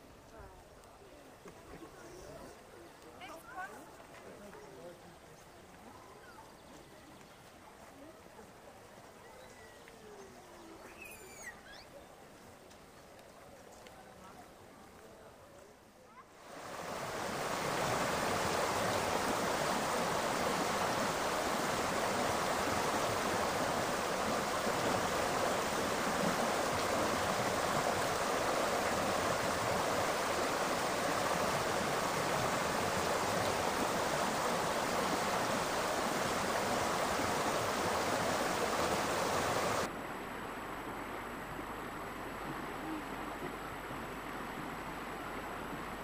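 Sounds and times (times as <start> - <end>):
stream water rushing over stones: 16.4 - 46.0.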